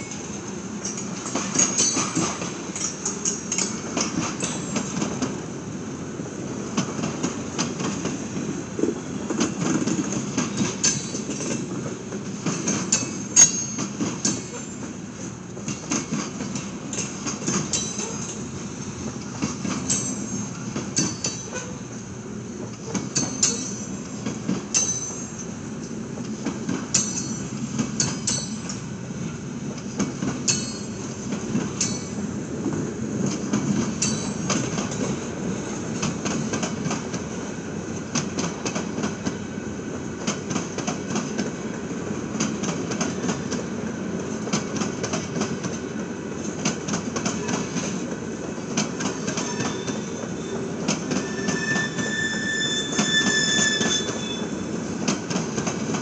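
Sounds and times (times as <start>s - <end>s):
wheels clacking over rail joints: 0.0s - 5.4s, 6.7s - 21.8s, 22.6s - 28.9s, 29.8s - 37.3s, 40.2s - 56.0s
freight train rumbling past: 0.0s - 56.0s
high wheel squeals: 49.3s - 54.8s.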